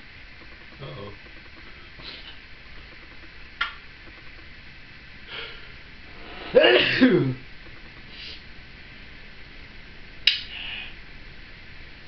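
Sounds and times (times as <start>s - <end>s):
sharp click: 10.2s - 10.5s.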